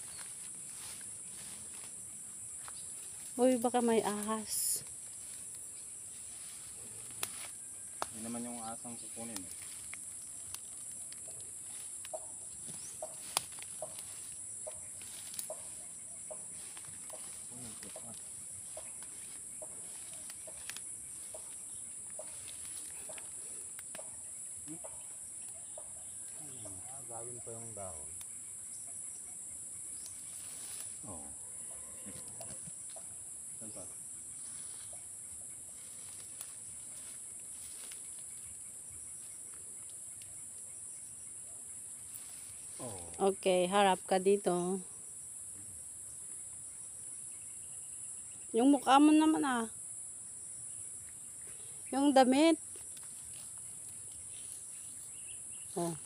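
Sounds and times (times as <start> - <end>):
high-pitched insect drone: 0.0 - 56.0
leafy vines snapping and rustling: 6.6 - 8.3, 9.2 - 15.7, 16.6 - 24.1, 35.8 - 38.4, 52.7 - 54.3.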